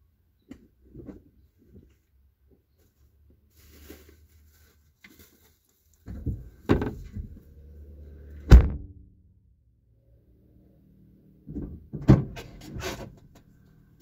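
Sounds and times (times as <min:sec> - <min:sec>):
heavy thunks: 0:08.4 - 0:09.1.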